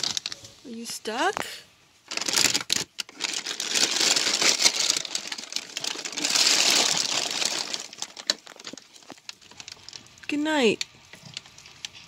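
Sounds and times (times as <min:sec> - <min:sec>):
plastic bag rustling: 0:00.0 - 0:00.7, 0:02.0 - 0:10.3.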